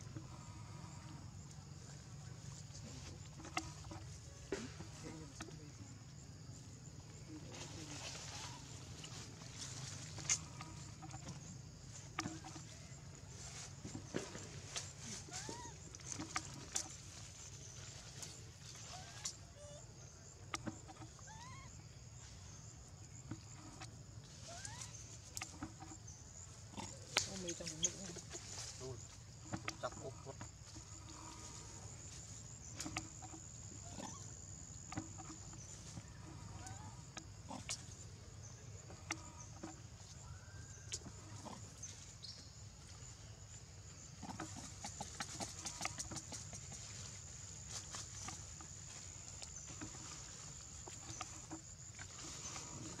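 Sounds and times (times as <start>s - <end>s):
baby monkey whimpering coos: 21.2s - 21.7s.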